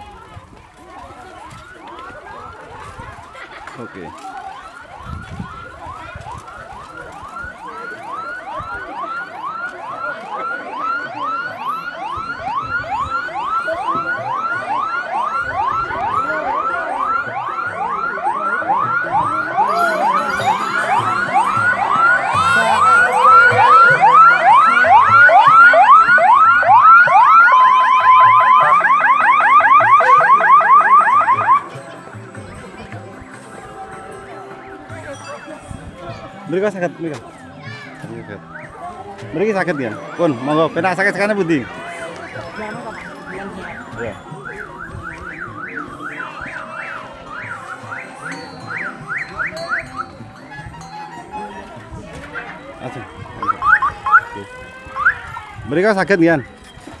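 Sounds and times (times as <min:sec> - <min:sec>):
electronic siren whooping: 0:05.1 - 0:31.6, 0:53.4 - 0:55.6
steady beep: 0:53.4 - 0:54.2.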